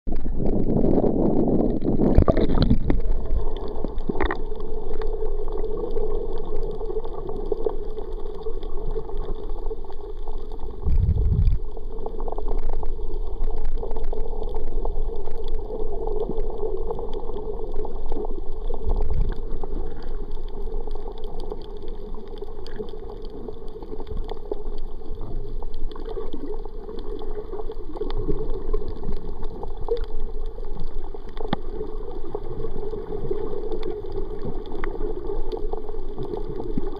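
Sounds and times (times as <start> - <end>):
small underwater clicks: 0.1 - 36.9
underwater water noise: 0.1 - 36.9
low thumps: 10.8 - 11.6.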